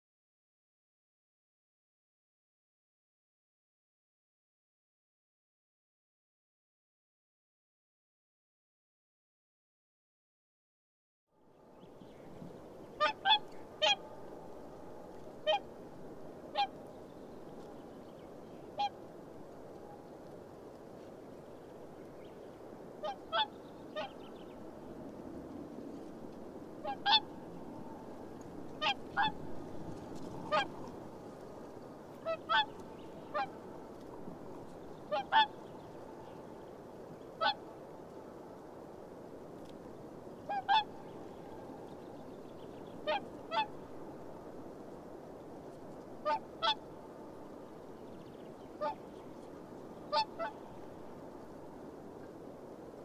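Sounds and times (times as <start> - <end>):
low background hiss: 11.4 - 53.0
swans honking: 13.0 - 14.2, 15.4 - 15.7, 18.7 - 19.0, 23.0 - 24.2, 26.8 - 27.5, 28.8 - 29.5, 30.4 - 30.9, 32.2 - 33.6, 35.1 - 35.6, 37.4 - 37.6, 40.5 - 41.0, 43.0 - 43.8, 46.2 - 46.8, 50.1 - 50.7.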